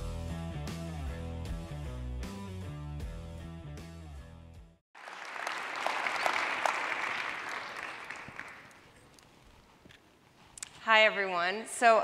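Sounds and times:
audience applause: 5.0 - 8.9.

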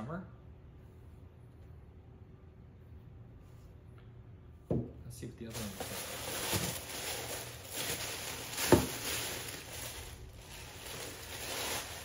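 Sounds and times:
tissue paper rustling and crinkling: 5.5 - 12.0.

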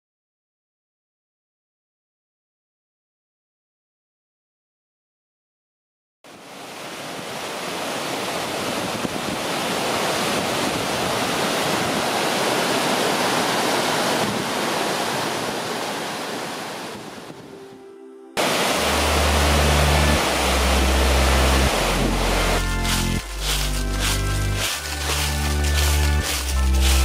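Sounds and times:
rushing whitewater: 6.3 - 17.3, 18.4 - 27.0.

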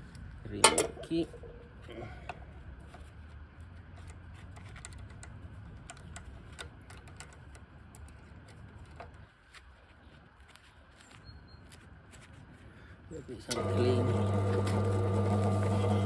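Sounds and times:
small metallic clicks and taps: 3.9 - 9.7
low machine hum: 12.7 - 16.0.

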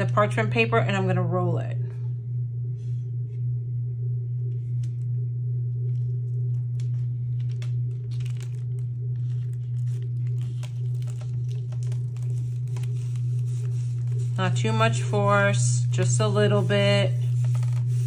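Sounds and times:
steady low hum: 0.0 - 18.0
parchment paper crinkling: 5.9 - 18.0.

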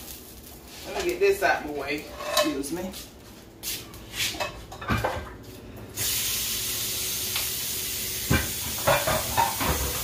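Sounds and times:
dishes clinking: 8.8 - 10.0.

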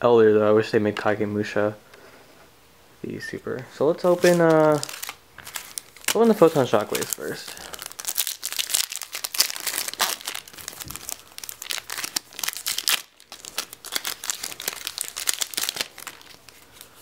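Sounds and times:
foil wrapper crinkling: 4.0 - 17.0.

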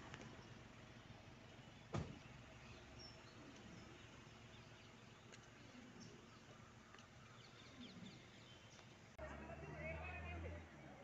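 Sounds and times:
sharp thump: 1.9 - 2.2.

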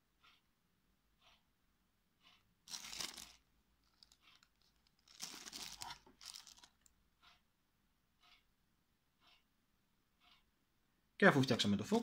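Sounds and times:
plastic packaging crinkling: 2.7 - 6.9.

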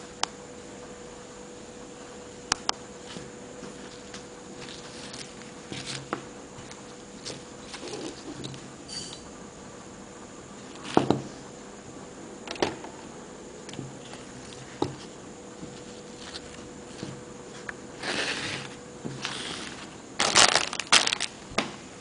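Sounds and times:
plastic wrapping crinkling: 18.0 - 21.5.

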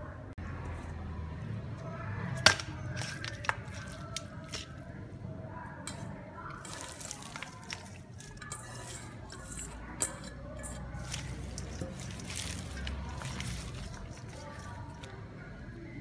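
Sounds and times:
hands squishing raw chicken: 2.4 - 5.0, 6.6 - 8.4, 11.0 - 15.3
leaves tipped into metal bowl: 10.6 - 15.1.

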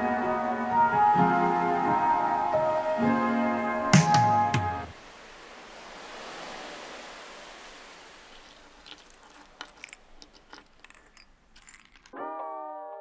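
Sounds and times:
music: 0.0 - 4.9, 12.2 - 13.0
light clicks and taps of containers: 8.4 - 12.2.

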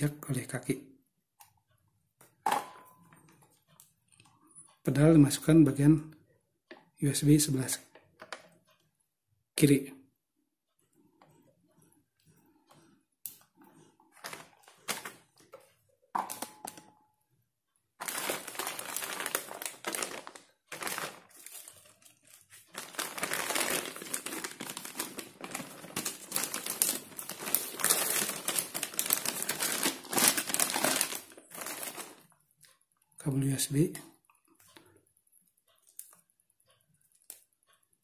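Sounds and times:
plastic packaging crinkling: 14.2 - 15.3, 18.0 - 32.3.

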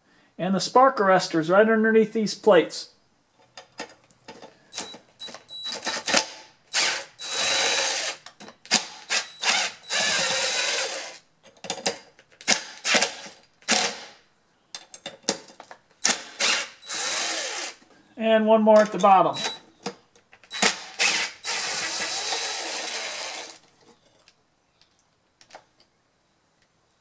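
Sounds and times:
cordless drill running: 6.7 - 8.2, 8.8 - 11.2, 16.0 - 17.8, 20.5 - 23.6.

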